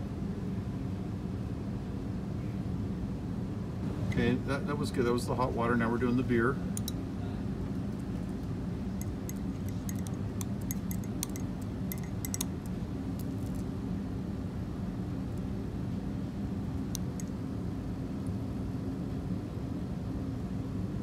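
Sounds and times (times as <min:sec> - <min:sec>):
steady low hum: 0:00.0 - 0:21.0
glass rod clinking on flask: 0:09.0 - 0:12.5.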